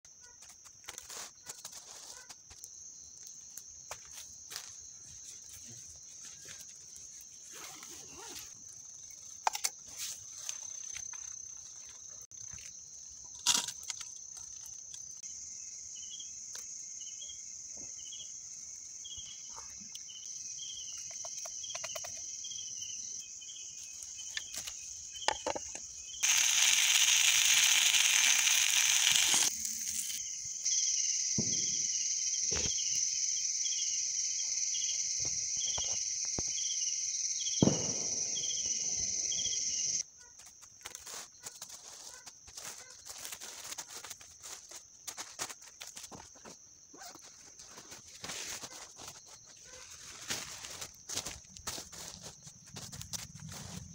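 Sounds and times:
crickets chirring: 0.1 - 53.9
pulsing insect call: 14.1 - 40.0
fish sizzling in oil: 26.2 - 30.2.

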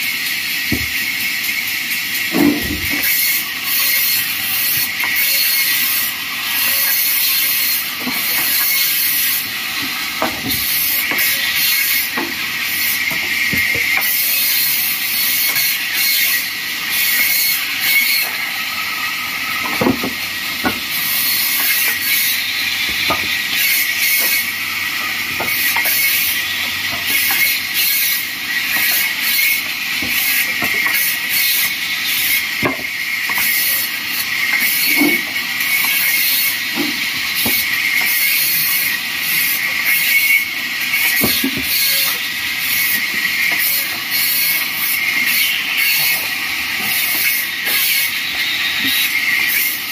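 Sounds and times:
bandsaw cutting wood: 0.4 - 49.9
boards knocking on saw table: 0.7 - 0.9, 2.3 - 3.1, 10.2 - 11.3, 13.1 - 14.1, 19.6 - 20.9, 22.9 - 24.4, 32.6 - 33.5, 41.0 - 41.9.

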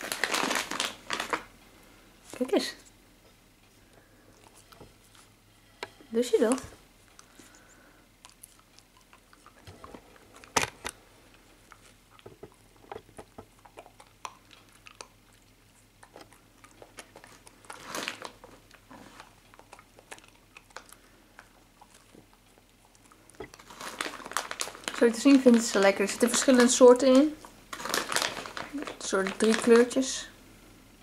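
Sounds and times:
dog chewing and crunching treats: 0.0 - 1.6, 3.8 - 5.4, 6.0 - 30.3.

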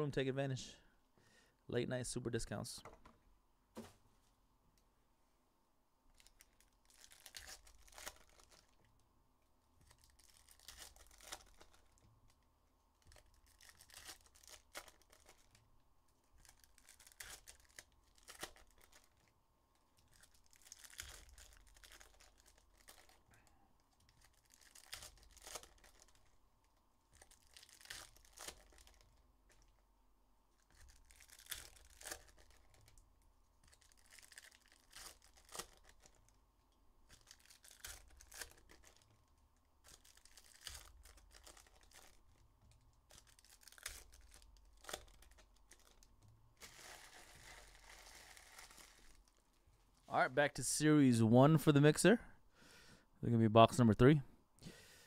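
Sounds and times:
wrappers being ripped open: 6.2 - 8.8, 9.8 - 12.0, 13.0 - 15.6, 16.3 - 19.3, 20.0 - 23.2, 23.9 - 26.4, 27.1 - 29.7, 30.6 - 33.0, 33.6 - 36.4, 37.1 - 39.1, 39.8 - 42.3, 43.0 - 49.4.

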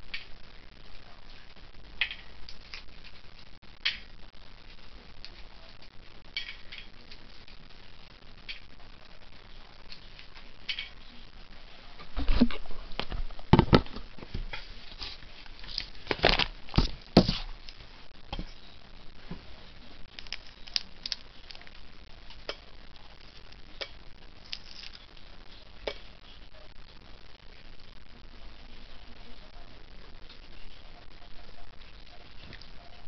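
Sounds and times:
eggshell cracking and crackling: 20.0 - 22.6, 23.3 - 25.0.

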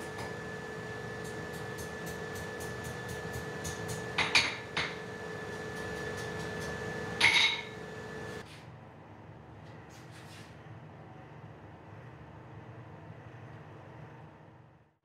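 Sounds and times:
steady machine hum: 0.0 - 9.6.

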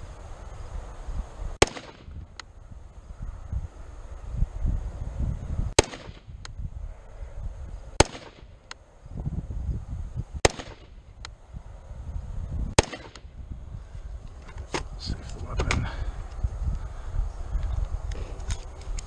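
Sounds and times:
rifle shots: 1.6 - 2.2, 5.8 - 6.4, 8.0 - 8.6, 10.4 - 11.0, 12.8 - 13.3.

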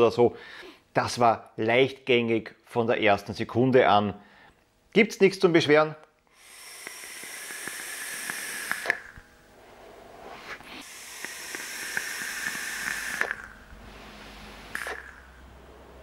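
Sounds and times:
air hissing through vape atomizer: 6.3 - 15.5
vape coil crackling: 6.5 - 9.2, 10.6 - 13.7, 14.4 - 15.4.

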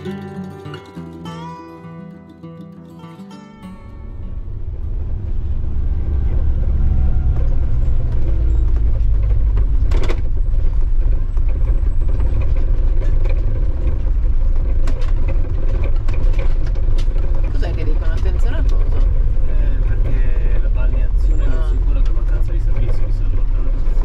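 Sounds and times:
motorhome engine and road rumble: 3.6 - 24.0.

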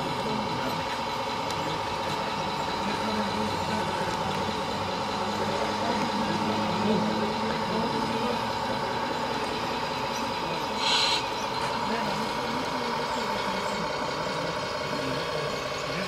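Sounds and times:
model machines whining: 0.0 - 16.0.

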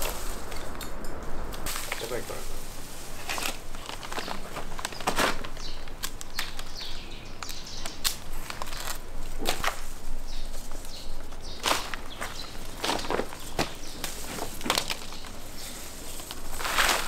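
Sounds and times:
branches rustling: 0.0 - 17.0
sharp clicks and snaps: 3.3 - 9.8.

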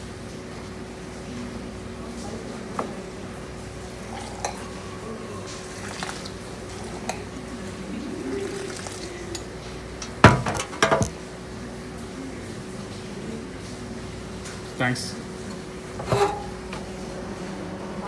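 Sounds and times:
tea pouring into tumbler: 3.9 - 9.5
metal vessels clinking: 4.1 - 4.8, 8.4 - 11.2, 16.0 - 16.6
cup knocking on wooden counter: 10.2 - 11.1.

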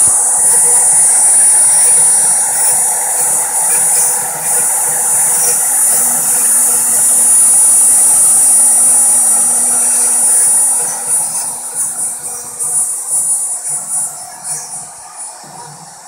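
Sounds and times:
end mill cutting wood: 0.0 - 14.9
router spindle whine: 0.0 - 16.0.

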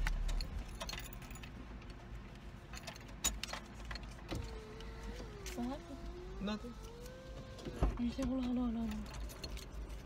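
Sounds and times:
small objects clicking and jingling: 0.0 - 2.0, 8.8 - 10.0.

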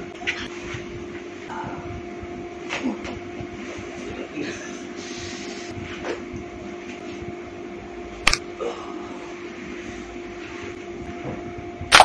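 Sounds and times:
mechanical hum: 0.0 - 12.0.

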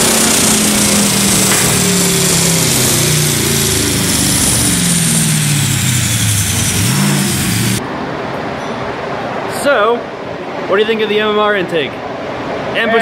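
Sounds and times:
loud rushing noise: 0.0 - 8.3
car engine on a dyno: 0.0 - 9.4.

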